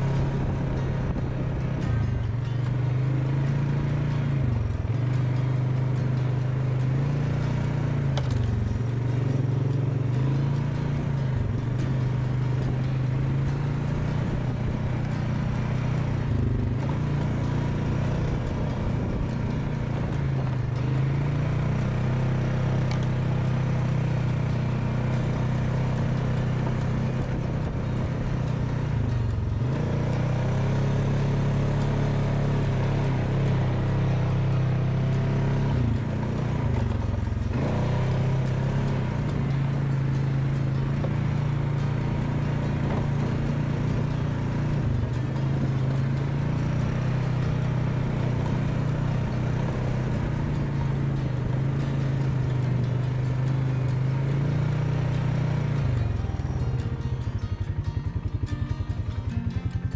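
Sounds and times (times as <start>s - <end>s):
atv engine running: 0.0s - 59.9s.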